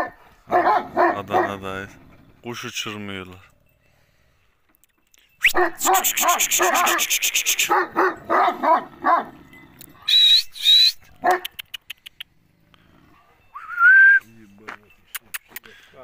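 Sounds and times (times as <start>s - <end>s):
dog barking: 0.0s - 1.7s, 5.5s - 9.4s, 11.2s - 11.6s
short high whistles: 5.2s - 7.7s, 10.1s - 11.1s, 13.5s - 14.4s.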